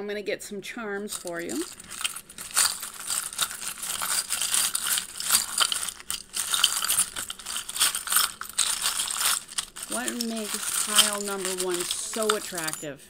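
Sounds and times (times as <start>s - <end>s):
metal charms jingling: 1.0s - 12.9s.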